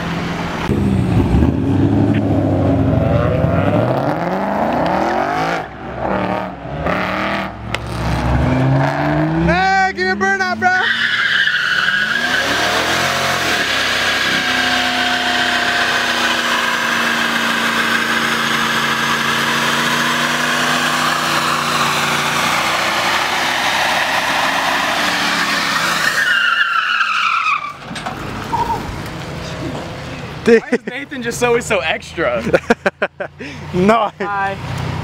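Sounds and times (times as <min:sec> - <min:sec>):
car engine at high revs: 0:00.0 - 0:09.6, 0:10.8 - 0:26.2
tyre squeal: 0:10.7 - 0:29.8.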